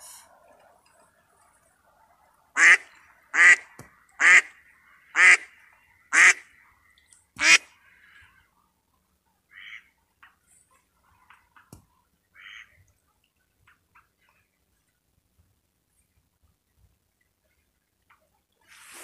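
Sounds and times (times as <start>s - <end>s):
duck quacking: 2.6s - 3.6s, 4.2s - 4.5s, 5.1s - 5.5s, 6.1s - 6.5s, 7.4s - 7.7s, 9.5s - 9.9s, 12.4s - 12.7s.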